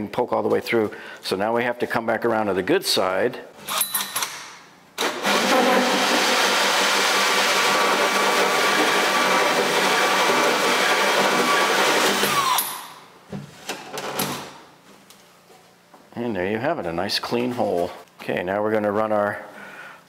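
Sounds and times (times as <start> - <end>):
power drill cutting through wood: 5.0 - 13.0.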